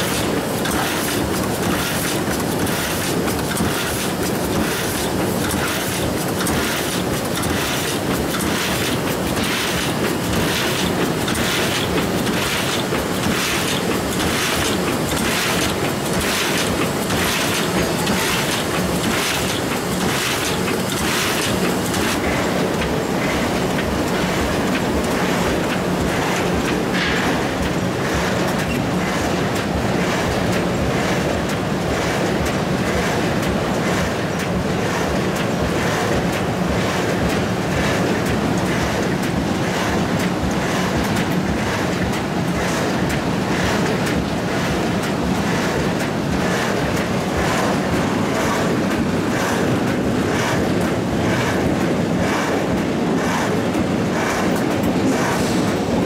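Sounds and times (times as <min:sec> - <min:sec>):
die cutting machine clattering: 0:00.0 - 0:56.0.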